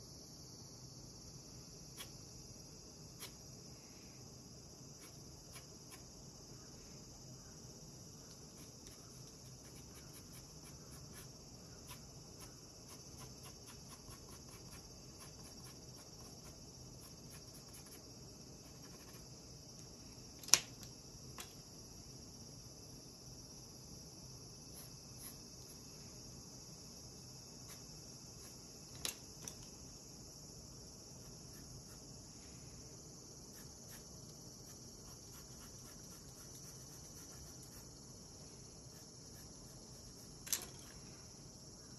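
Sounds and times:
steady high-pitched hiss: 0.0s - 41.9s
colored pencil scratching on paper: 8.5s - 18.0s, 18.6s - 19.2s, 24.7s - 25.7s, 31.3s - 32.1s, 33.5s - 38.0s
pencil clicking down on desk: 40.4s - 40.9s.

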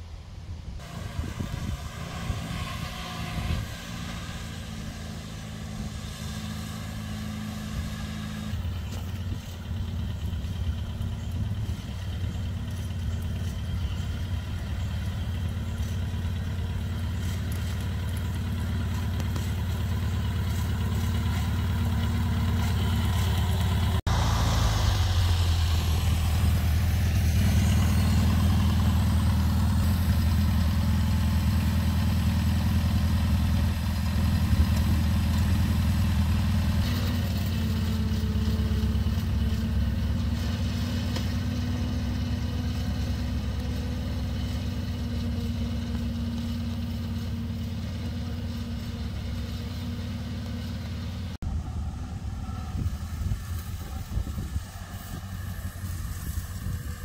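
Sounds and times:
tractor engine running: 0.8s - 57.0s.

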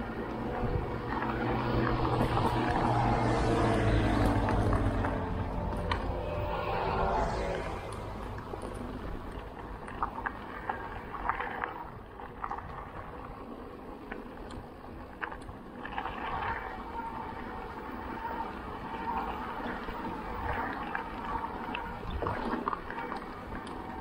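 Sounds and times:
wind and tyre rumble: 0.0s - 24.0s
small rattles and clicks: 7.5s - 17.5s.

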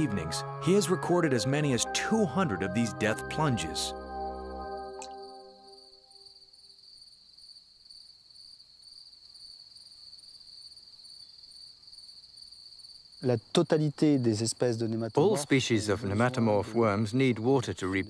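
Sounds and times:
crickets trilling: 5.7s - 18.0s.

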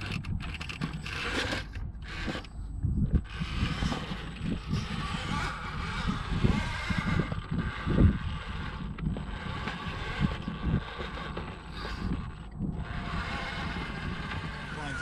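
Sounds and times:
electric motor whining: 0.0s - 15.0s
wind on microphone: 0.0s - 15.0s.

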